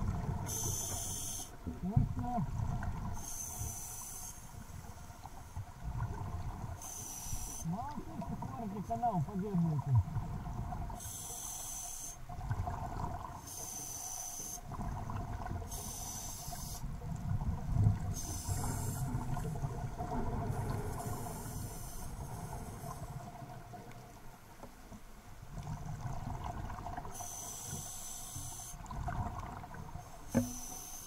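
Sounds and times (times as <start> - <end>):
diver inhaling hiss: 0.5 - 1.6, 3.2 - 4.9, 6.8 - 7.7, 11.0 - 12.2, 13.5 - 14.6, 15.7 - 16.9, 18.1 - 19.5, 20.9 - 23.2, 27.1 - 28.8, 30.5 - 31.0.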